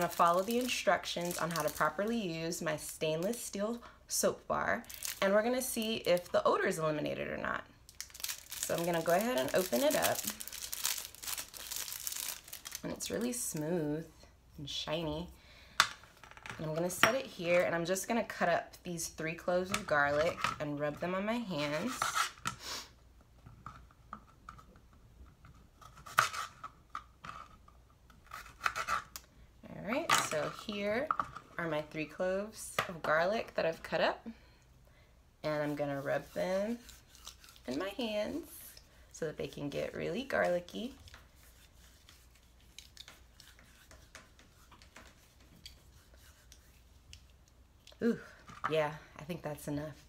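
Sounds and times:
hands rubbing garlic: 41.3s - 47.4s.

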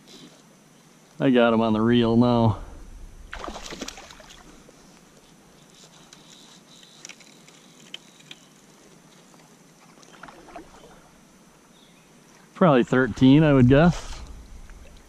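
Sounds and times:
water splashing and sloshing: 2.9s - 5.4s, 9.1s - 11.3s, 14.2s - 15.0s.

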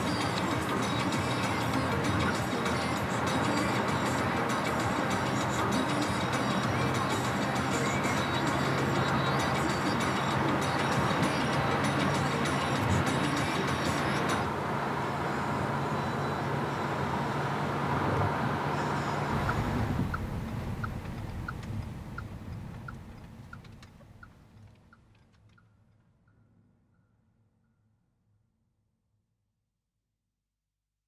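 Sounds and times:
turn signal ticking: 0.0s - 14.5s, 16.4s - 25.8s
car road and engine noise: 0.0s - 26.8s.

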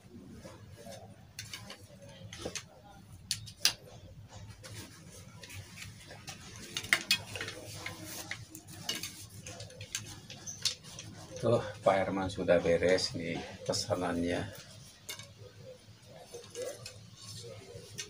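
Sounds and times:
cloth rustling: 4.3s - 11.7s.

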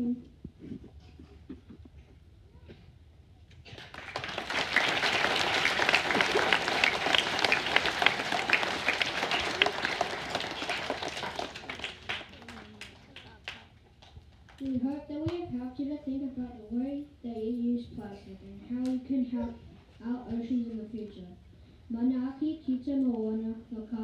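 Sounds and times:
audience applauding: 3.7s - 14.6s.

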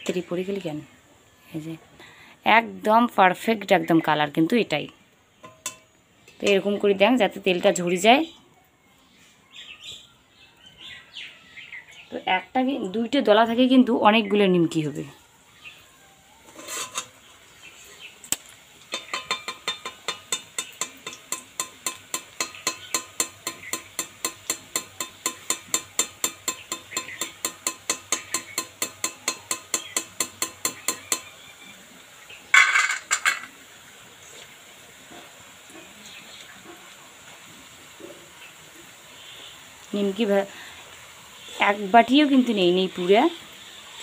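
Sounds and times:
metal spoon tapping pan rim: 5.4s - 6.6s, 18.9s - 31.3s
metal clatter: 32.5s - 33.5s.

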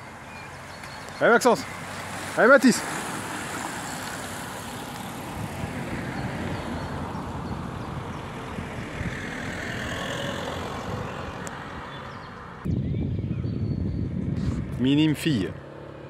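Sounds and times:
car engine and road noise: 0.0s - 12.7s, 13.4s - 16.0s.

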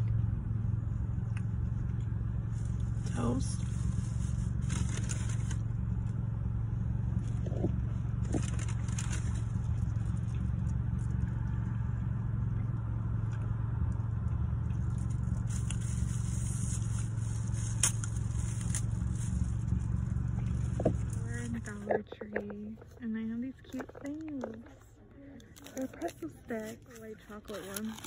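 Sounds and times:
car engine idling: 0.0s - 28.0s
person chewing bread: 7.1s - 21.2s.

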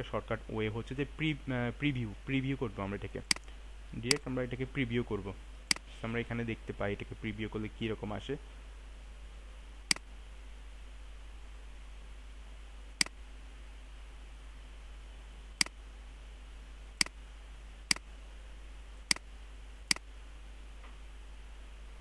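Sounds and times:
steady low hum: 0.0s - 22.0s
computer mouse clicks: 9.9s - 10.1s, 19.9s - 20.1s.

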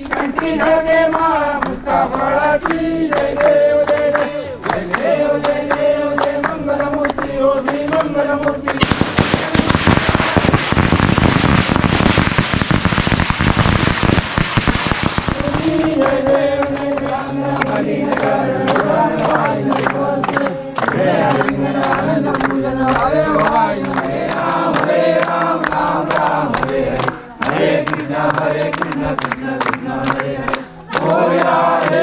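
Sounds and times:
group singing devotional song: 0.0s - 10.4s, 15.2s - 32.0s
firecrackers crackling: 7.6s - 32.0s.

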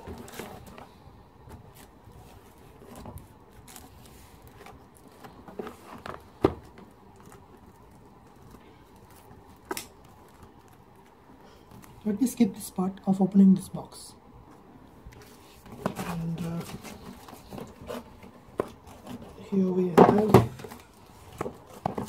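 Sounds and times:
cardboard box being handled: 15.2s - 22.0s.

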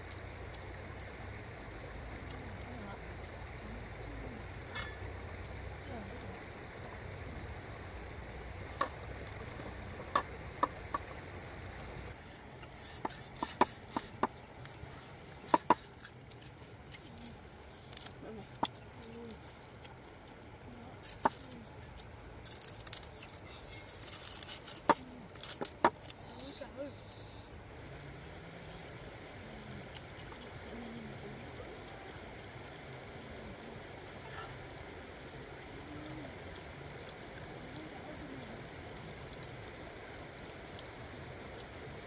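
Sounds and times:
cleaver chopping on clay plate: 12.9s - 14.3s.

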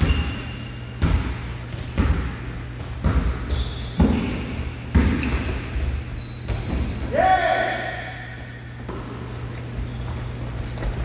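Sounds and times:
basketball bouncing on wooden floor: 0.0s - 7.0s
sneaker squeaks: 0.0s - 7.2s, 8.0s - 11.0s.

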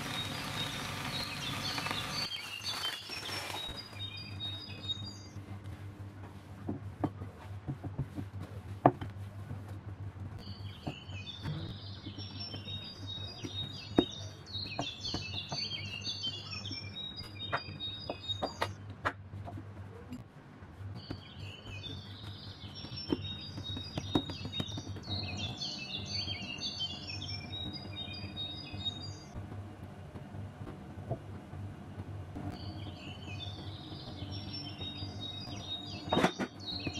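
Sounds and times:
small birds chirping: 0.0s - 5.4s, 10.4s - 18.8s, 21.0s - 29.3s, 32.6s - 36.9s
low hum: 0.0s - 36.9s.

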